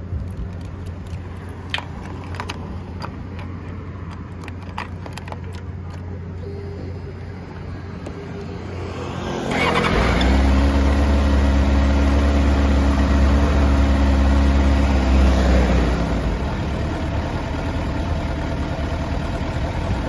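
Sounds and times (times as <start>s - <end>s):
motorcycle electric starter: 9.5s - 10.9s
motorcycle engine idling: 16.2s - 20.0s.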